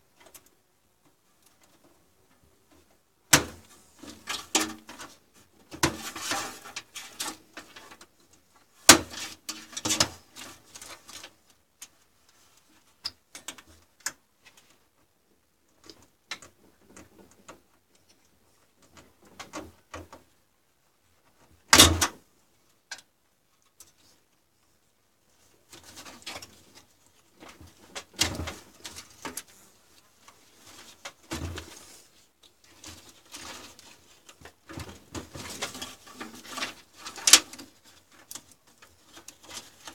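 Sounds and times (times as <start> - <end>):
cables handled in metal case: 25.7 - 39.9.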